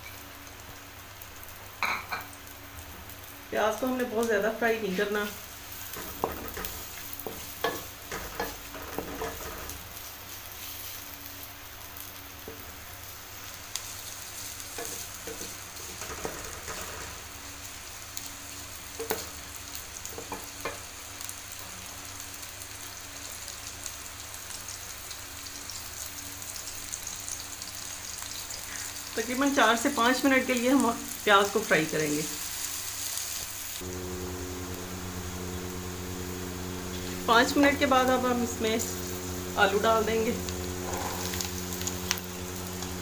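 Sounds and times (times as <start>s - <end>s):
onions sizzling in oil: 0.0s - 43.0s
spatula scraping and knocking pan: 5.9s - 9.8s, 14.7s - 17.2s.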